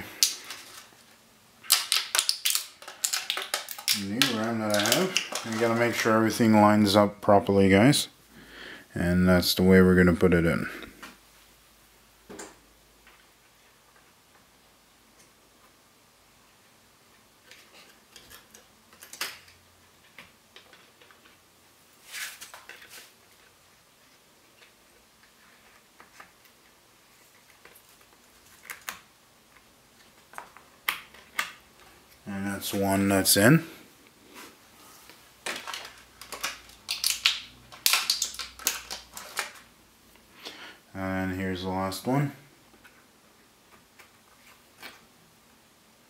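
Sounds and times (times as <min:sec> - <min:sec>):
small clicks of handling computer parts: 0:17.4 - 0:21.4, 0:35.1 - 0:39.7.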